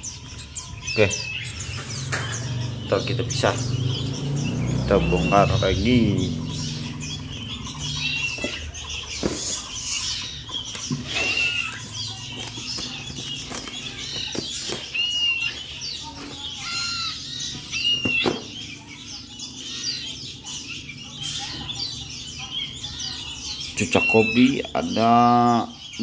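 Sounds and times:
nestling birds chirping: 0:00.0 - 0:26.0.

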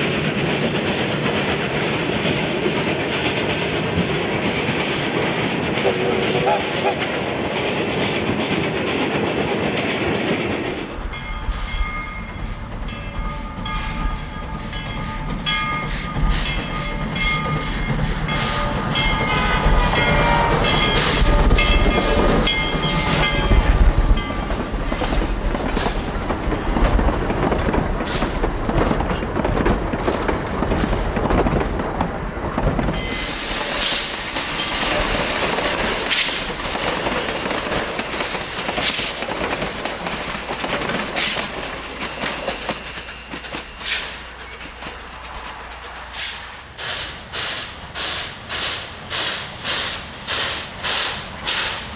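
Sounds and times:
clickety-clack wheel noise: 0:00.0 - 0:51.9
steam locomotive exhaust chuffs: 0:10.2 - 0:26.4, 0:32.7 - 0:51.9
steam whistle blasts: 0:18.4 - 0:21.6
metallic hiss: 0:45.6 - 0:51.9.

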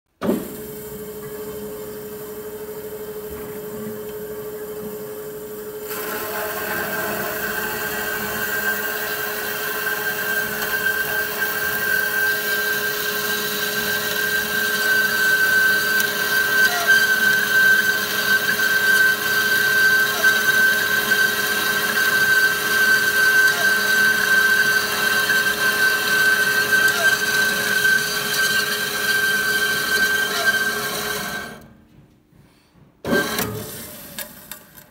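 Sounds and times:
saw blade whining through steel: 0:05.8 - 0:31.7.

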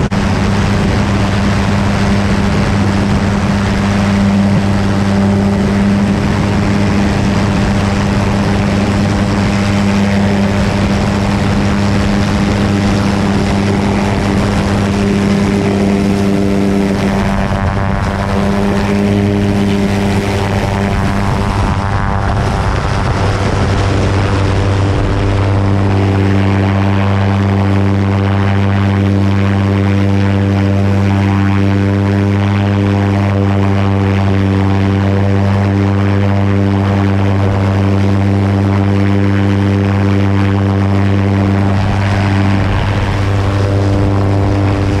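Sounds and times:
wind rushing: 0:00.0 - 0:28.9, 0:39.4 - 0:45.0
helicopter rotors and engine drone: 0:00.0 - 0:45.0.

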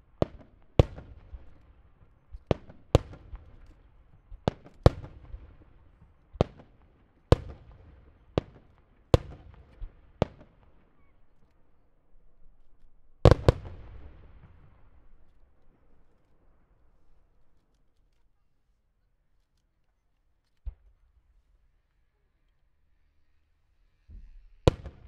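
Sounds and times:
firework shells bursting: 0:24.1 - 0:25.0.

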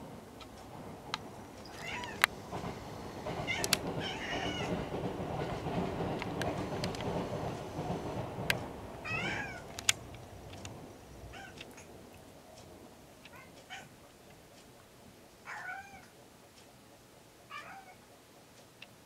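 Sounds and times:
cat chirping: 0:01.6 - 0:02.2, 0:09.0 - 0:09.7, 0:11.3 - 0:11.9, 0:13.3 - 0:13.9, 0:15.4 - 0:16.1, 0:17.5 - 0:18.0
sharp clicks: 0:03.3 - 0:04.0, 0:06.1 - 0:07.7, 0:09.6 - 0:10.8.

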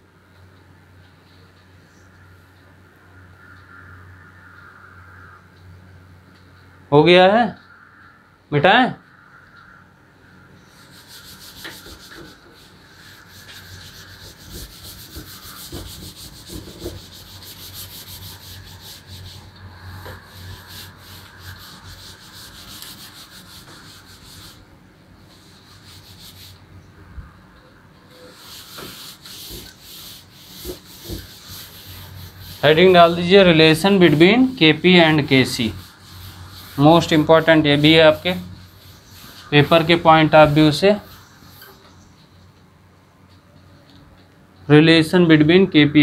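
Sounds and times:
cloth wiping chalkboard: 0:10.7 - 0:24.7, 0:25.3 - 0:26.6, 0:28.2 - 0:41.8.

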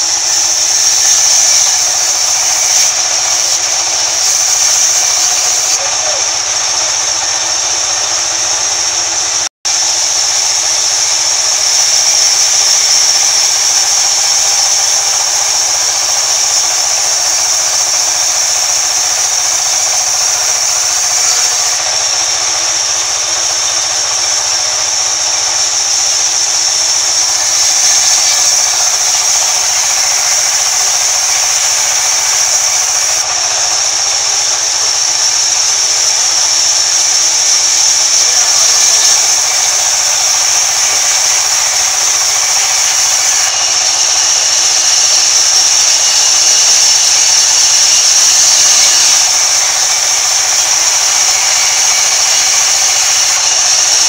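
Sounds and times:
band saw cutting wood: 0:00.0 - 0:54.0.

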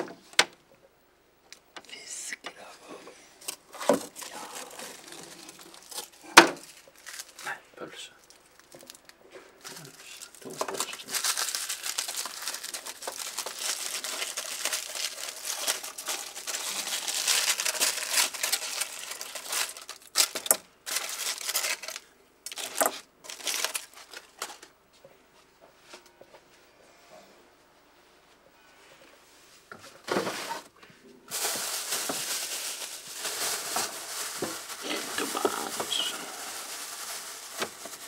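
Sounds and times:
aluminium foil crinkling: 0:03.4 - 0:07.6, 0:08.2 - 0:24.7, 0:31.3 - 0:38.0.

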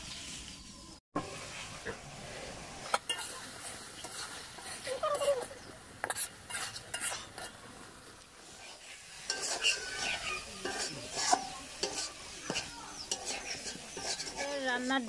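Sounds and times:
curry sizzling: 0:00.0 - 0:15.0
metal spatula scraping pan: 0:02.9 - 0:07.6, 0:08.5 - 0:15.0.

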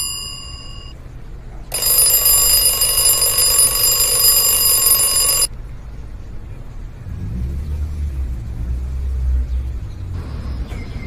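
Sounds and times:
alarm ringing: 0:00.0 - 0:00.9, 0:01.7 - 0:05.5.

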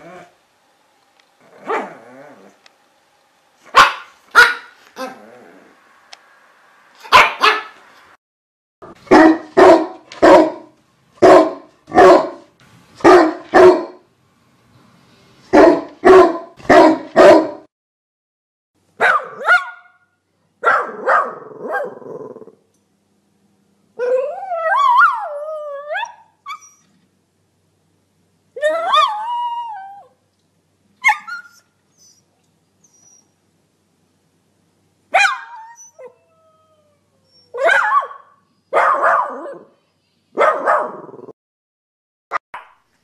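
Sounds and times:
dog barking sharply: 0:03.7 - 0:04.8, 0:07.0 - 0:07.8, 0:09.0 - 0:14.0, 0:15.6 - 0:17.7, 0:19.0 - 0:20.0, 0:20.6 - 0:21.9, 0:35.1 - 0:35.6, 0:37.6 - 0:39.6, 0:40.4 - 0:41.0
dog wavering cry: 0:28.6 - 0:30.1, 0:35.2 - 0:38.2.

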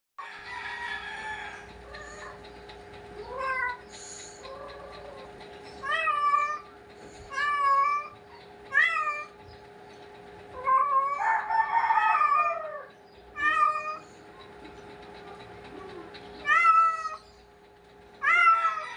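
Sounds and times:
cat meowing: 0:08.7 - 0:09.3.

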